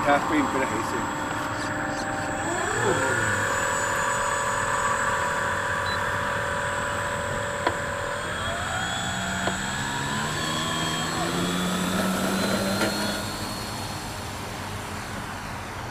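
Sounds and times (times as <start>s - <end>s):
model airplane motor and propeller: 0.0s - 15.9s.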